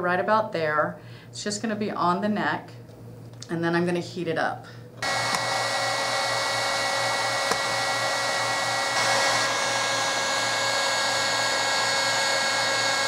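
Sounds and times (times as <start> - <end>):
heat gun fan hiss and whine: 4.6 - 13.0.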